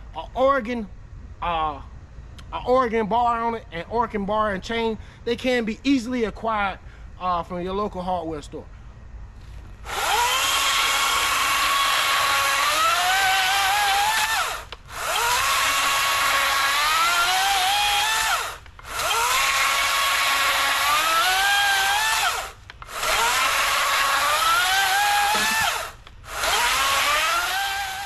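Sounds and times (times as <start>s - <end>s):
electric chainsaw cutting log: 9.8s - 28.0s.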